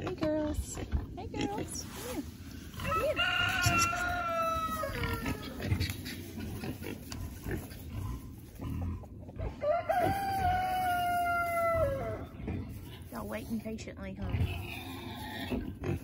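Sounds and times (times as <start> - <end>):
rooster crowing: 2.8 - 5.6, 9.5 - 12.3.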